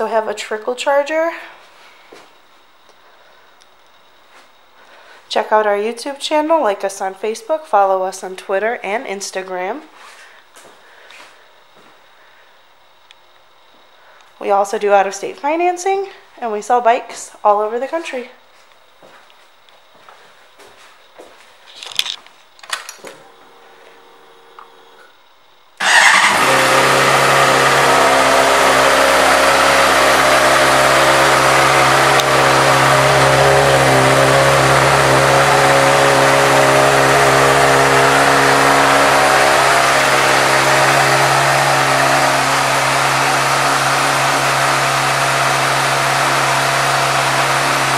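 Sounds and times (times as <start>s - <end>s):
motorcycle engine starting and idling: 22.6s - 25.2s, 25.8s - 47.9s.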